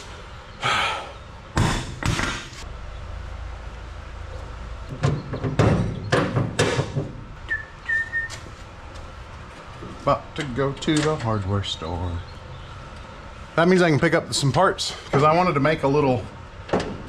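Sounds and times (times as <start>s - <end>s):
low steady hum: 0.0s - 17.0s
metal clanks and knocks: 4.8s - 7.3s, 16.7s - 17.0s.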